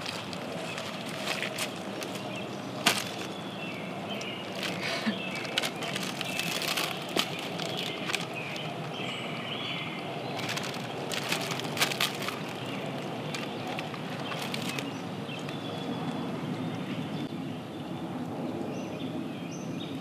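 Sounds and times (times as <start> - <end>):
plastic package crinkling: 0.0 - 9.0, 10.3 - 14.9
woodland ambience: 0.0 - 18.0.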